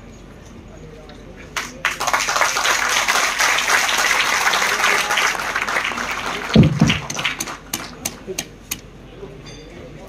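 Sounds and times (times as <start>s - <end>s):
audience applauding: 1.6s - 8.5s
dull low thump: 6.6s - 7.1s.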